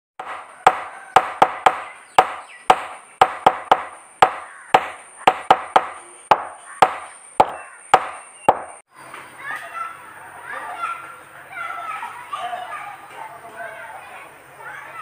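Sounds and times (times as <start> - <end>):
sharp ringing knocks: 0.2 - 8.8.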